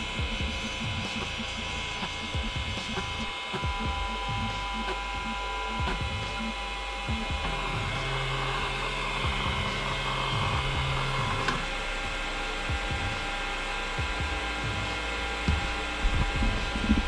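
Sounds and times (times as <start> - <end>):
low hum: 0.0 - 17.0
printer fans running: 0.0 - 17.0
stepper motors whining: 0.0 - 17.0.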